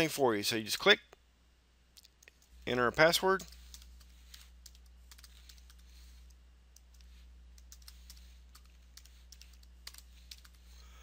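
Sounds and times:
low electrical hum: 0.0s - 11.0s
computer keyboard typing: 3.4s - 10.7s.

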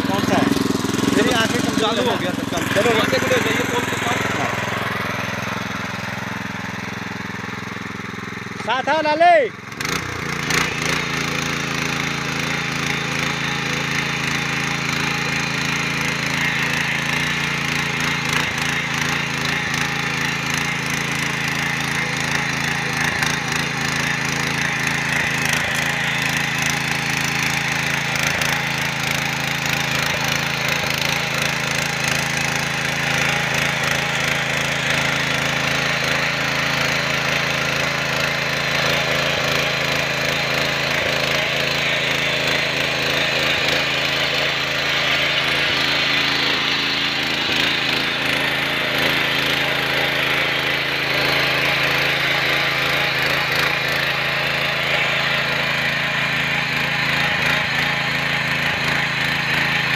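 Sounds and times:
tines scraping through soil: 0.0s - 6.7s, 9.8s - 59.9s
small engine running: 0.0s - 59.9s.

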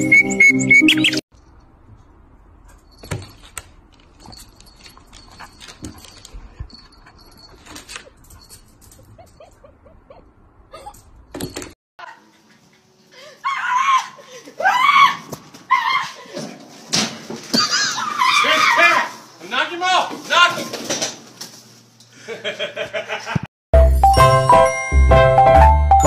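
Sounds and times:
dog whimpering: 9.0s - 11.0s.

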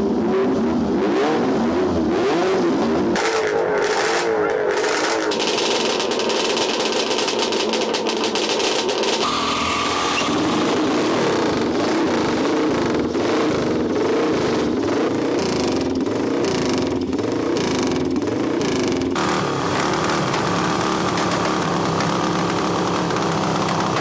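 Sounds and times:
motorcycle engine revving: 0.0s - 24.0s
high steady whine: 9.2s - 14.9s.

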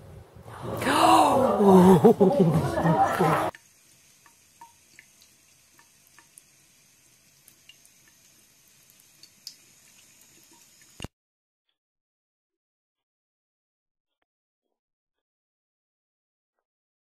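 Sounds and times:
faucet trickling into sink: 3.5s - 11.1s
soft water drips: 3.5s - 11.1s.

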